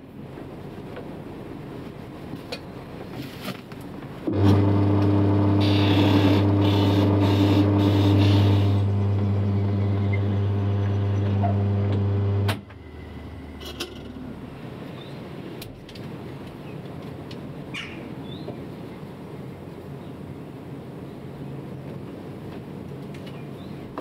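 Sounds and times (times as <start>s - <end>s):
drill bit boring into wood: 4.3s - 12.5s
lathe motor humming: 4.3s - 13.4s.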